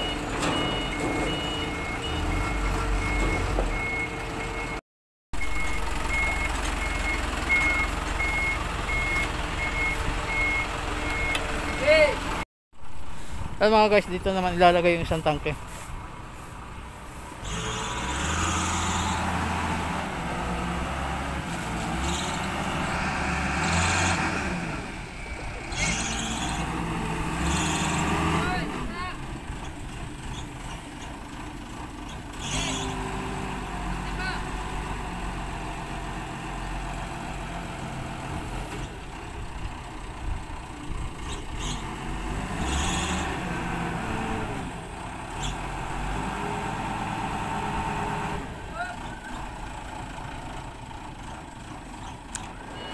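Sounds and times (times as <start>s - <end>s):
forklift engine running: 5.4s - 13.6s, 29.2s - 42.6s, 43.4s - 52.9s.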